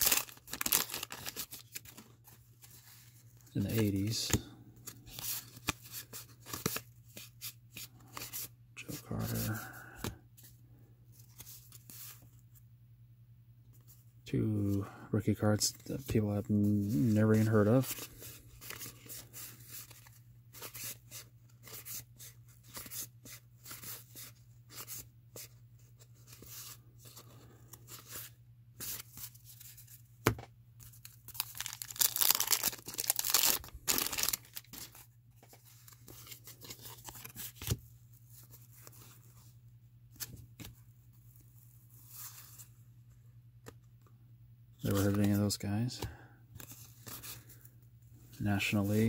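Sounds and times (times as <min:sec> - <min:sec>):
wax paper tearing and crinkling: 0:00.0 - 0:02.0, 0:31.3 - 0:34.9.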